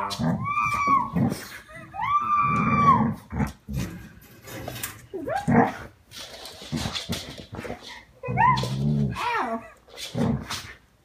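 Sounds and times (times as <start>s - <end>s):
dog whining and yelping: 0.0s - 3.2s, 8.2s - 9.9s.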